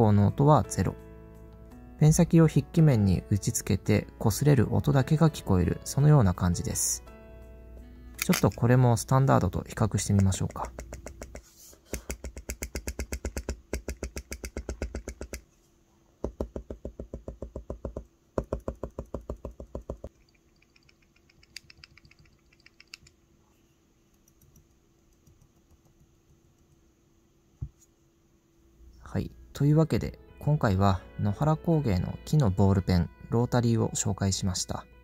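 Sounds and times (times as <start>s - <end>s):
pen tips striking paper: 10.0s - 15.4s.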